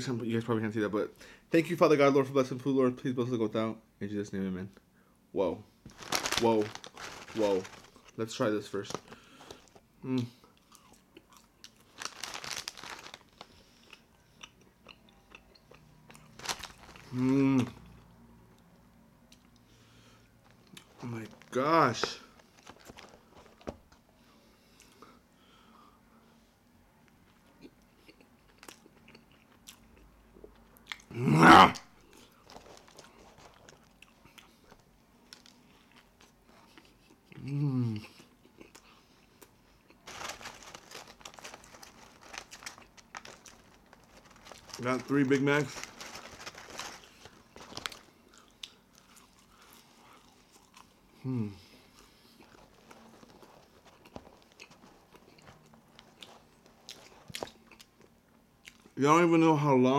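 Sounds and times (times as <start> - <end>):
close-miked chewing: 8.9 - 18.1, 32.1 - 44.9, 45.7 - 59.0
person moaning: 17.1 - 17.8, 31.1 - 31.8, 51.2 - 51.7.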